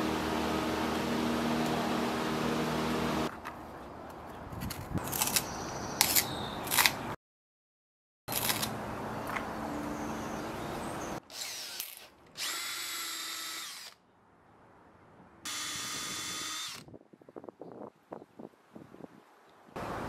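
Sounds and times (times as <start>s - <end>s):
power drill shaving wood: 11.3s - 14.0s, 15.5s - 16.8s.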